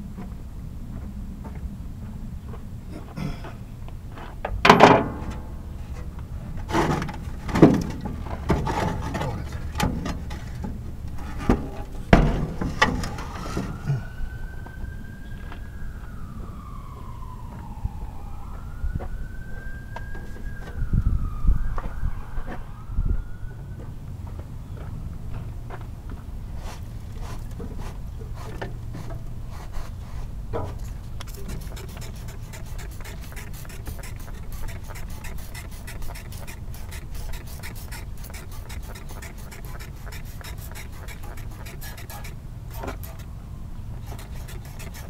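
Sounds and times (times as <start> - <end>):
low steady hum: 0.0 - 45.0
distant siren wailing: 4.8 - 25.8.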